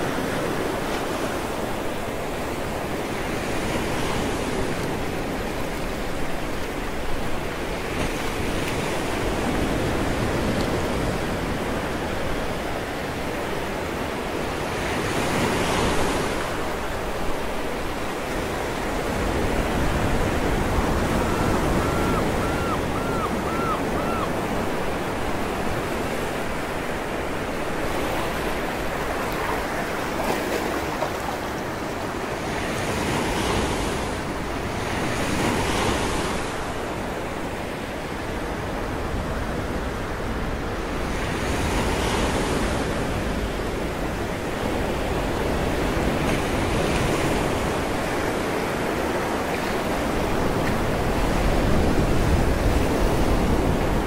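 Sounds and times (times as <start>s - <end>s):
wind on microphone: 17.9s - 26.9s, 49.8s - 54.0s.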